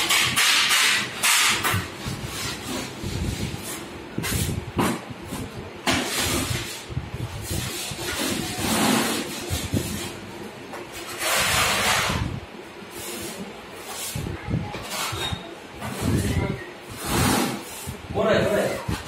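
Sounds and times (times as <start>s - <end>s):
putty blade scraping wall: 7.4s - 10.1s, 17.0s - 17.7s.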